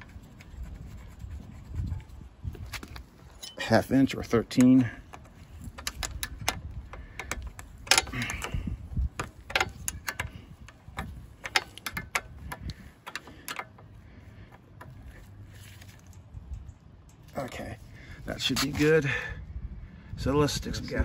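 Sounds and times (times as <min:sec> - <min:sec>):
wrench clicking on a bolt: 0:04.2 - 0:15.2.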